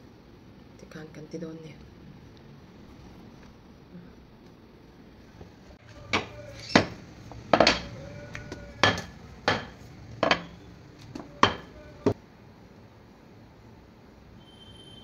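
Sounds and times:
rolling pin knocking on glass: 5.9s - 12.2s.

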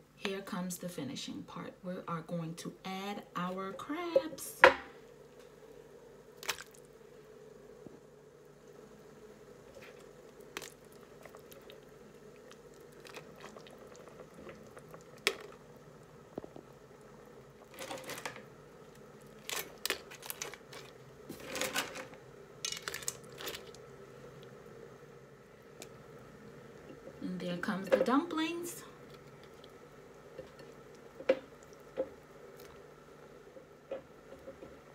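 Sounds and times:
faint steady hum: 0.0s - 34.9s
crab shells clicking and rattling: 19.3s - 23.8s.

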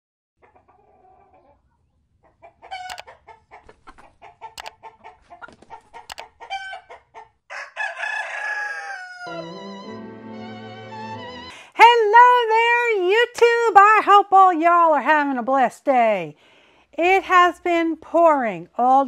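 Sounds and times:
chickens clucking: 0.4s - 9.2s
rooster crowing: 7.5s - 10.0s.

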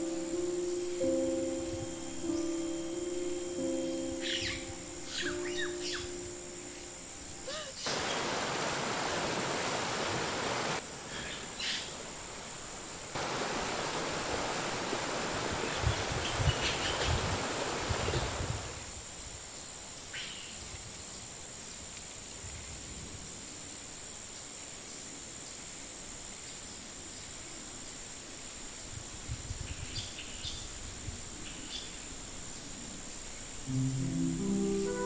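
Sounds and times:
high-pitched insect whine: 0.0s - 35.0s
water rushing down rocks: 7.8s - 11.0s, 11.9s - 18.8s.

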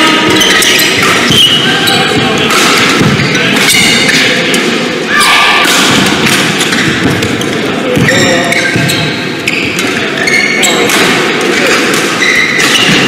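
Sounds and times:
shoes squeaking on court: 0.0s - 4.4s, 6.5s - 10.9s, 11.6s - 13.0s
rackets striking shuttlecock: 0.1s - 4.8s, 5.6s - 10.1s, 10.8s - 13.0s.

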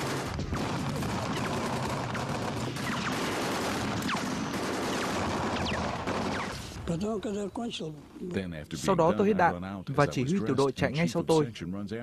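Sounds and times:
rapid gunfire: 0.0s - 7.0s.

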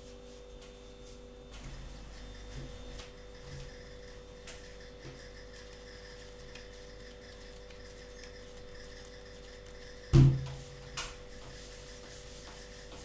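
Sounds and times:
steady low hum: 0.0s - 13.0s
hands tapping and rubbing dough: 4.4s - 13.0s.

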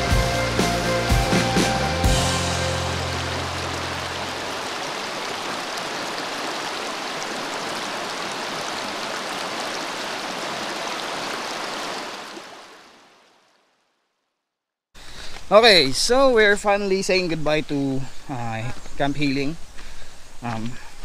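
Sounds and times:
river water rushing: 1.6s - 13.7s.

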